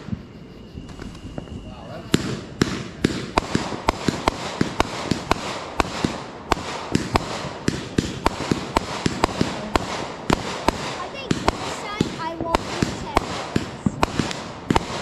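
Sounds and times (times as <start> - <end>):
fireworks bursting: 0.0 - 15.0
fireworks hiss: 7.1 - 14.9.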